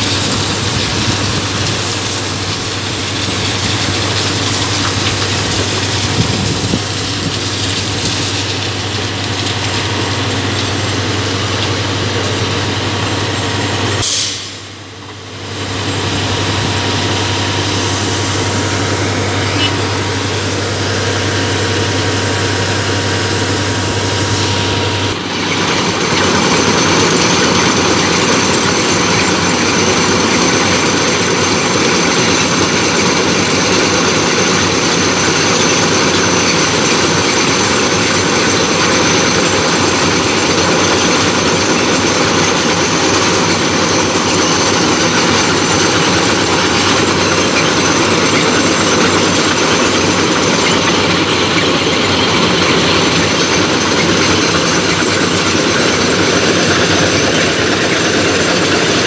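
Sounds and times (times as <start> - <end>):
heavy track machine running: 0.0 - 59.0.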